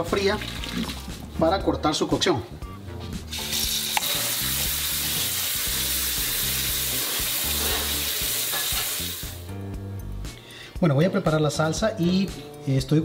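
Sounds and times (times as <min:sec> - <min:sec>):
water splashing into colander: 0:00.0 - 0:01.2, 0:03.3 - 0:09.4.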